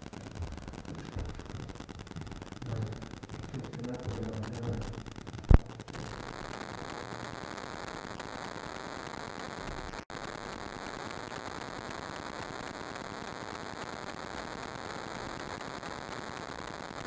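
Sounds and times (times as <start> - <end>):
static hiss: 0.0 - 17.0.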